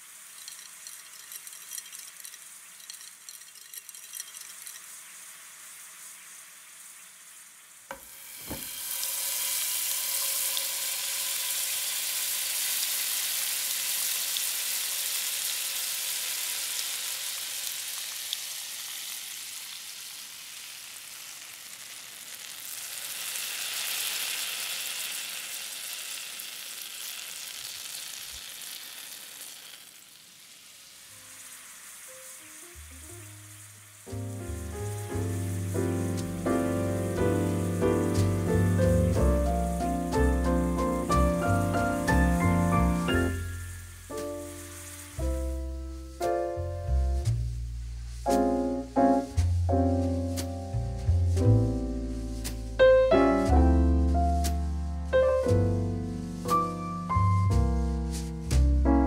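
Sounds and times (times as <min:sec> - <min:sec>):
liquid pouring: 0:00.0 - 0:06.8, 0:07.9 - 0:35.7
fish sizzling in frying pan: 0:00.0 - 0:58.7
knock: 0:07.9 - 0:08.7.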